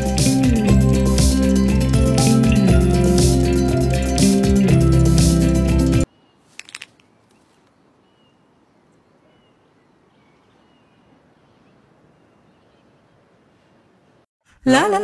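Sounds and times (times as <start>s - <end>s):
music: 0.0s - 6.1s
birds chirping softly: 6.0s - 14.2s.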